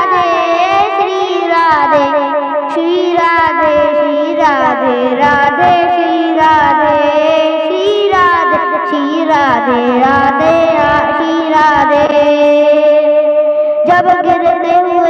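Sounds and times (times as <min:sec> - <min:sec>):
boy singing devotional song: 0:00.0 - 0:15.0.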